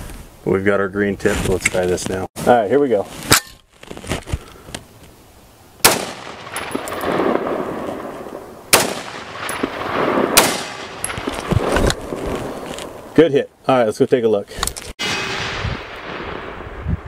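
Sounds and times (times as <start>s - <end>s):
rifle shots with rumble: 5.8s - 8.1s, 8.7s - 11.8s, 15.0s - 17.0s.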